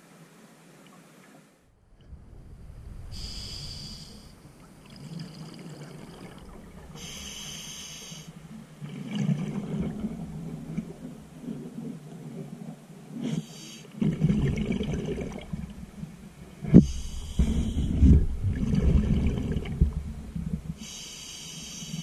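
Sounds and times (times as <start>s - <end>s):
rush of exhaled bubbles: 2.1s - 7.2s, 8.3s - 11.8s, 14.0s - 16.0s, 16.6s - 20.8s
regulator breathing underwater: 2.9s - 8.6s, 16.8s - 18.3s, 20.8s - 22.0s.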